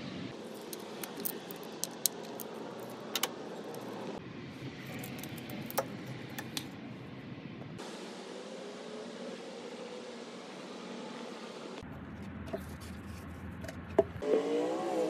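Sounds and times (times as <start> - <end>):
steady background hiss: 0.0 - 11.8.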